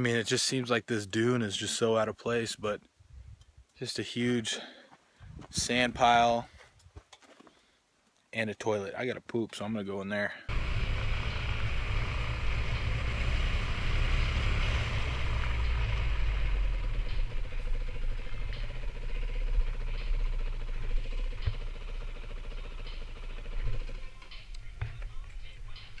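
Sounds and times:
wind rumbling on microphone: 0:05.2 - 0:06.0
dirt bike engine running: 0:10.5 - 0:26.0.

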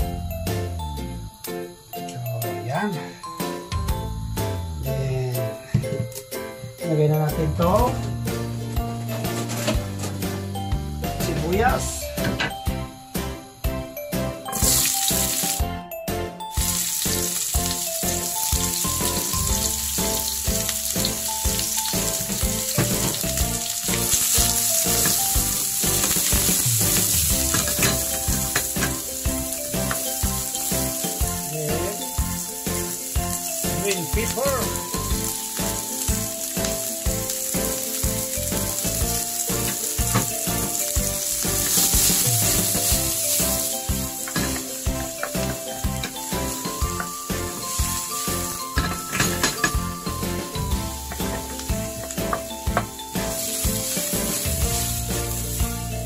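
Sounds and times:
vegetables sizzling in a frying pan: 0:14.6 - 0:15.6, 0:16.6 - 0:56.0
wooden spatula scraping: 0:39.7 - 0:45.7.

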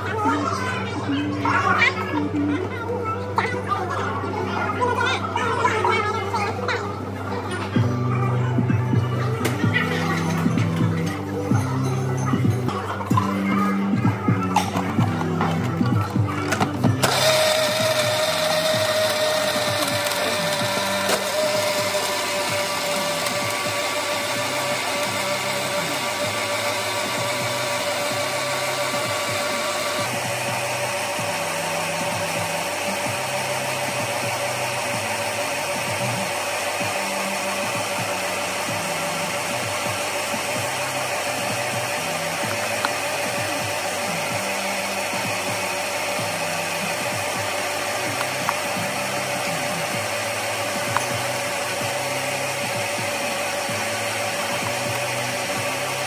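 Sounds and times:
bass line music: 0:05.3 - 0:56.0
machine whirring: 0:15.7 - 0:56.0.

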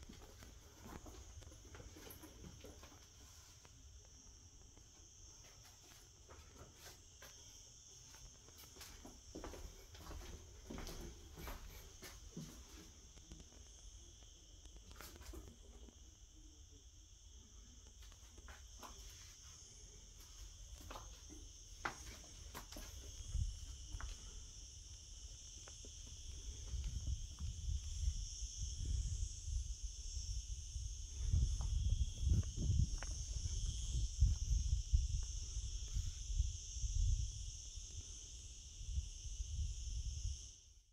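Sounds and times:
insects chirring: 0:00.0 - 0:40.9.

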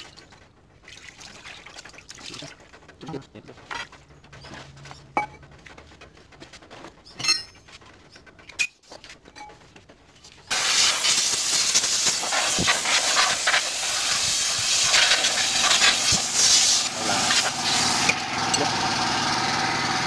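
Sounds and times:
spray nozzle hissing: 0:10.5 - 0:18.2.

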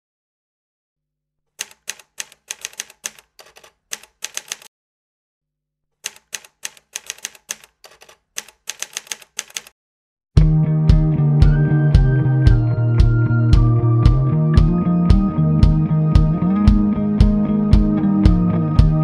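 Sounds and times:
typewriter keys clacking: 0:01.6 - 0:04.7, 0:06.0 - 0:09.7
music: 0:10.4 - 0:19.0.

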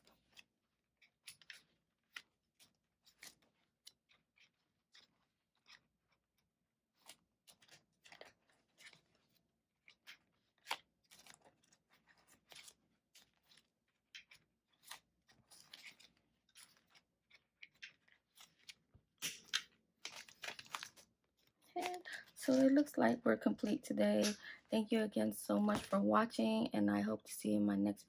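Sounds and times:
plastic envelopes and bills rustling: 0:00.0 - 0:06.3, 0:06.9 - 0:26.5.

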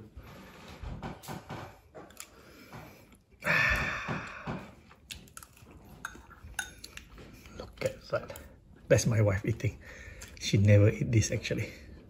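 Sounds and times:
soft chewing: 0:01.9 - 0:03.4, 0:04.6 - 0:10.8.

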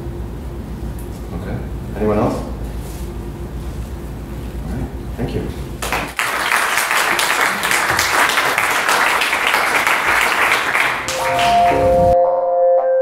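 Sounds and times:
audience applauding: 0:05.8 - 0:12.2
held electronic music notes: 0:11.1 - 0:13.0.

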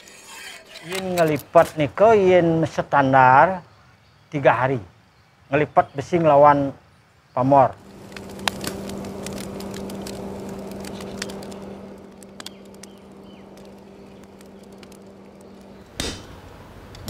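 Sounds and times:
fire crackling and popping: 0:07.8 - 0:17.0
low hum and rushing: 0:07.8 - 0:17.0.

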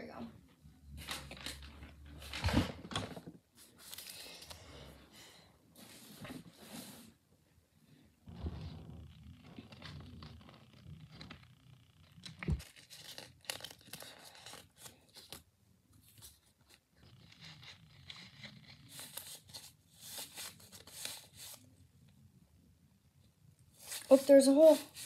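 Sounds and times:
paper crinkling and tearing: 0:01.0 - 0:03.1, 0:03.7 - 0:04.5, 0:12.2 - 0:21.6, 0:23.8 - 0:25.0.

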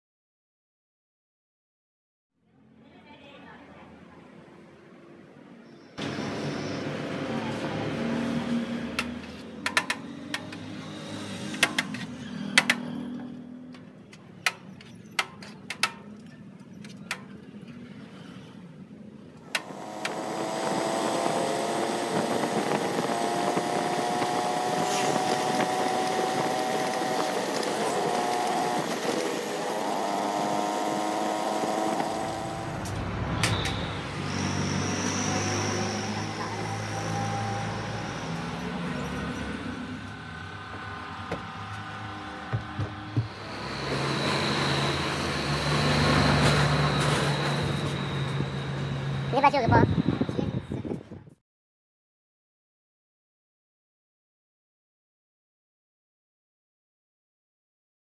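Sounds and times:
motorcycle engine running: 0:19.7 - 0:34.1, 0:39.9 - 0:44.1.

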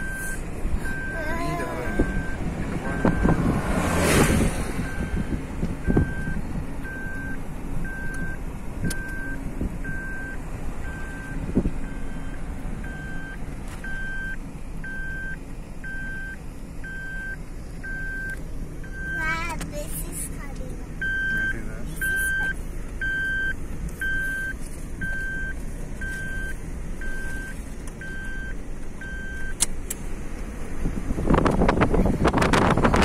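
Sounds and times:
car warning chime beeping: 0:00.0 - 0:04.1, 0:04.8 - 0:19.4, 0:21.0 - 0:29.7
road and engine rumble: 0:00.0 - 0:33.0
wind rush: 0:30.9 - 0:33.0.

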